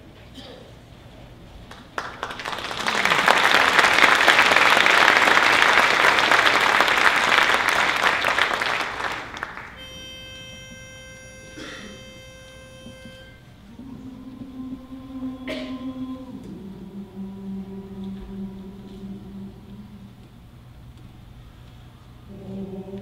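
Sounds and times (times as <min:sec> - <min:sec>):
audience applauding: 0:01.6 - 0:09.9
steady pitched note: 0:09.7 - 0:17.0.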